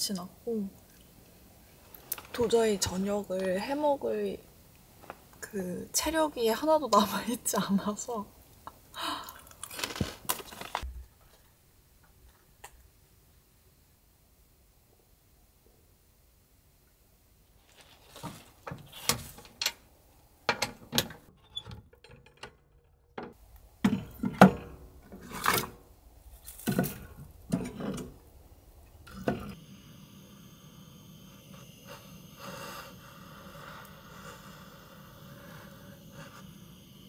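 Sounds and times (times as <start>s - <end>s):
firewood knocking and clattering: 20.5s - 29.6s.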